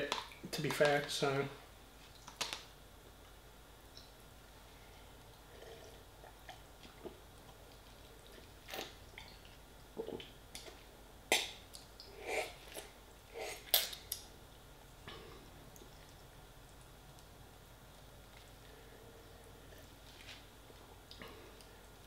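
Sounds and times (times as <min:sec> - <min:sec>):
mouth clicks and gulps: 0:05.8 - 0:12.9.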